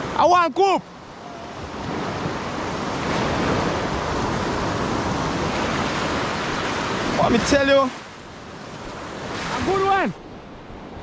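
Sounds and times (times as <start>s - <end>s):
ocean surf breaking: 0.0s - 11.0s.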